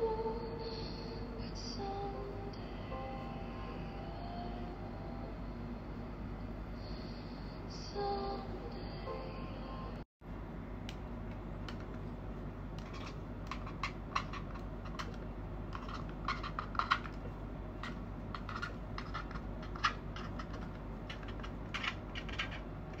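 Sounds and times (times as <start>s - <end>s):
marker pen scratching on paper: 12.8s - 17.2s, 17.8s - 23.0s.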